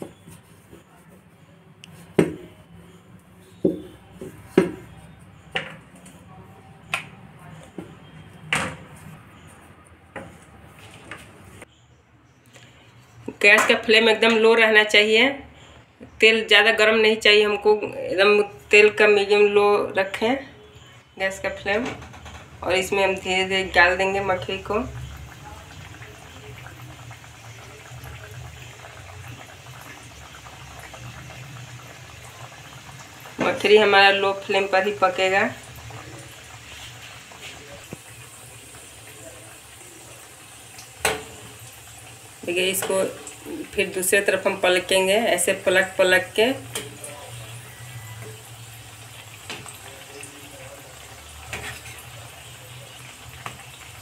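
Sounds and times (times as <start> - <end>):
dough frying in oil: 17.5 - 54.0.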